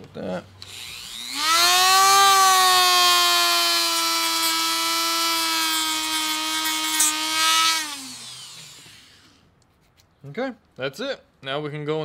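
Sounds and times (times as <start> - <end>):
rotary tool sanding plastic: 0.6 - 9.4.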